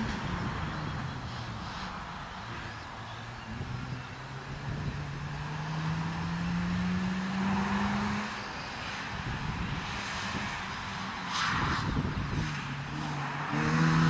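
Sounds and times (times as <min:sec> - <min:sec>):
rotary engine accelerating: 0:03.3 - 0:14.0.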